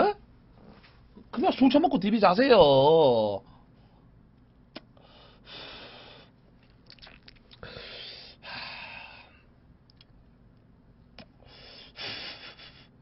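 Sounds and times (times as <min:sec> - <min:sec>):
mouth clicks: 0:04.7 - 0:04.9, 0:06.8 - 0:07.6.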